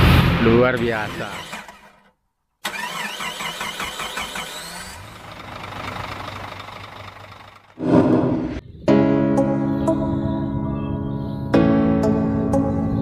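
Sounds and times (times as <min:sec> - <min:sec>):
rushing noise: 0:07.8 - 0:08.9.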